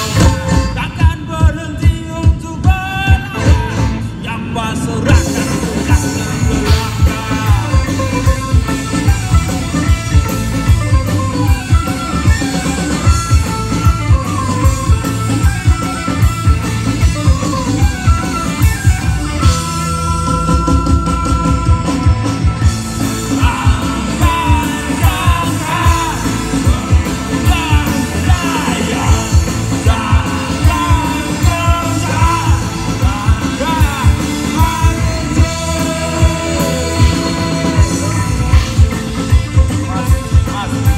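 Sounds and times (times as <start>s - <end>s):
accordion: 0.0s - 4.4s, 5.0s - 40.9s
person singing: 0.0s - 9.0s, 23.0s - 40.9s
rock band playing live: 0.0s - 40.9s.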